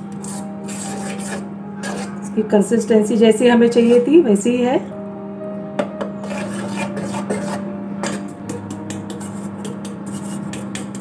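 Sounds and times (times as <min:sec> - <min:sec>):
utensil scraping metal bowl: 0:00.1 - 0:02.3, 0:06.2 - 0:11.0.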